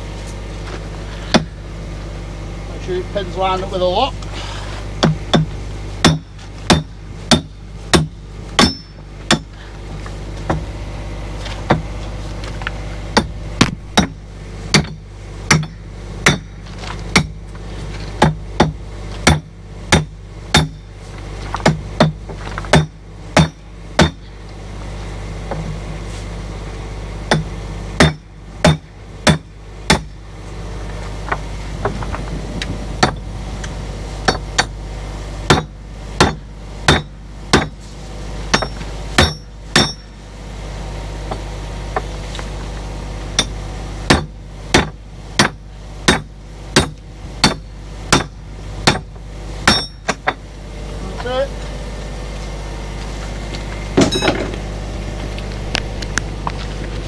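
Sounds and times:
low hum: 0.0s - 45.3s, 47.0s - 57.0s
hammer striking metal: 5.0s - 9.5s, 13.2s - 16.6s, 18.2s - 20.8s, 38.5s - 40.1s, 49.7s - 50.4s.

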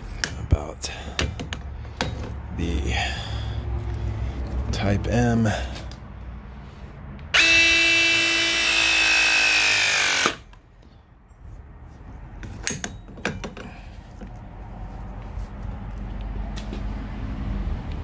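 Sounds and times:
press tool motor whining: 7.3s - 10.5s.

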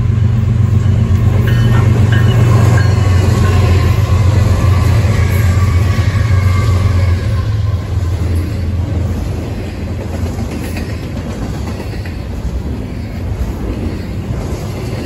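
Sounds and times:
diesel locomotive drone: 0.0s - 15.0s
train wheels rumbling on rails: 0.0s - 15.0s.

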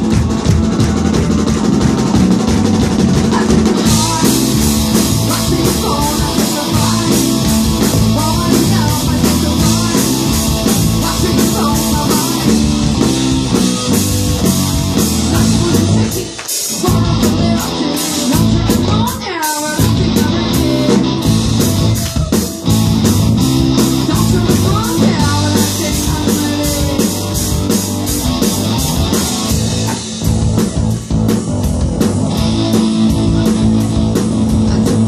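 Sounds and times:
rock band playing: 0.0s - 35.0s
woman singing: 3.3s - 12.8s, 15.2s - 21.2s, 24.0s - 27.2s.

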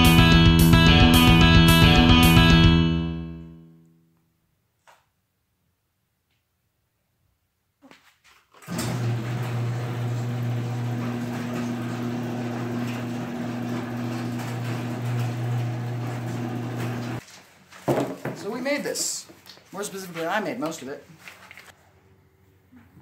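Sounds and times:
garage door opener motor hum: 8.6s - 17.2s.

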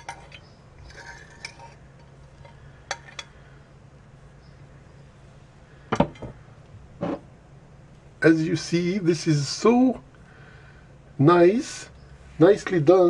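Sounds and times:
metal spoon clinking glass jar: 0.0s - 3.3s
faint low hum: 0.0s - 13.0s.

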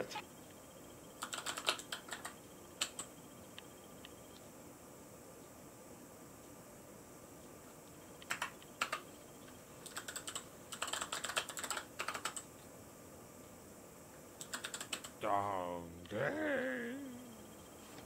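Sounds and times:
mechanical keyboard clicks: 1.2s - 3.0s, 8.2s - 9.0s, 9.9s - 12.4s, 14.4s - 15.1s.

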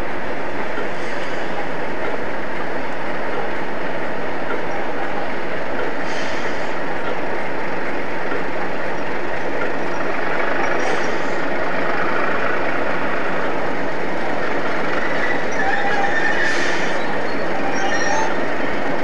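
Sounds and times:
diesel locomotive engines running: 0.0s - 19.0s.

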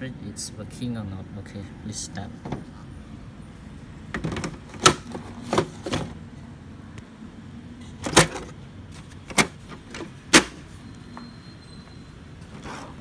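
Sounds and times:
plastic printer parts knocking: 4.1s - 6.2s, 8.0s - 8.6s.

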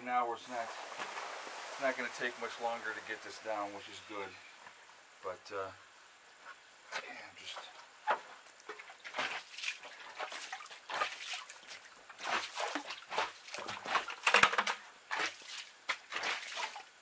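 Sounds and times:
water sloshing and splashing: 0.5s - 3.4s, 8.1s - 17.0s.

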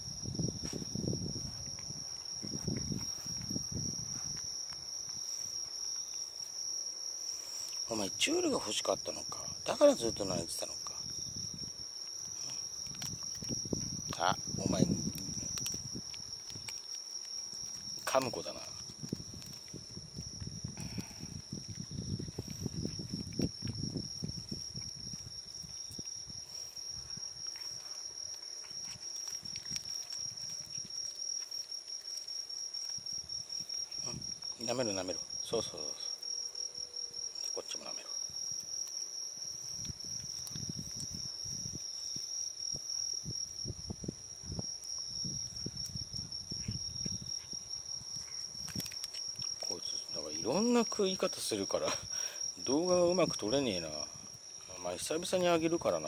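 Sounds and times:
insects trilling: 0.0s - 56.0s
cat licking and chewing: 12.1s - 14.0s, 21.5s - 33.6s, 48.2s - 49.6s.

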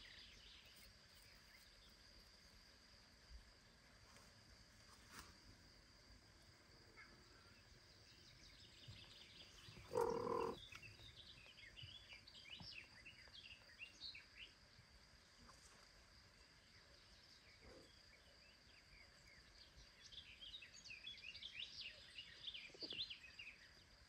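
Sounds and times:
birds chirping: 7.5s - 14.0s.

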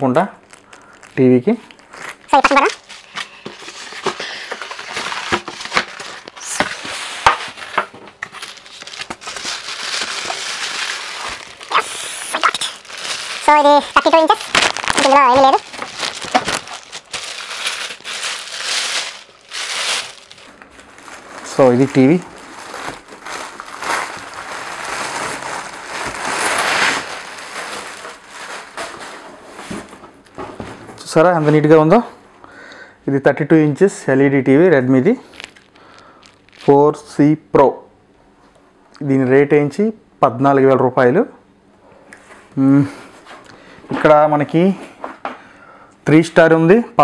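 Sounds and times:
packing foam rustling and crinkling: 0.0s - 30.2s, 35.2s - 37.0s.

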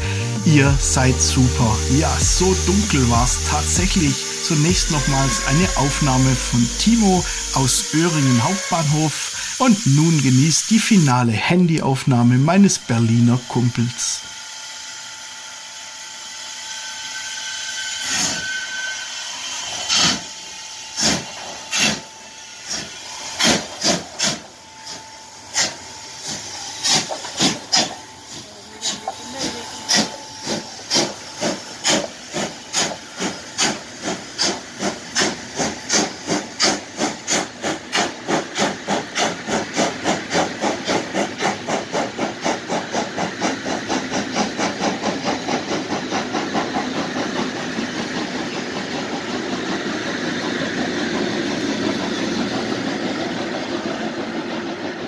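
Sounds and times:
steam hissing: 0.0s - 55.0s
steam locomotive exhaust beats: 0.0s - 55.0s.

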